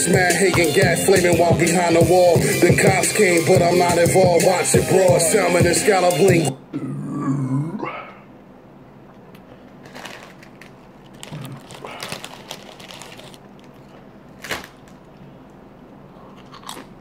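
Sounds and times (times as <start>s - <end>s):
plastic chip bag crinkling: 9.6s - 15.2s.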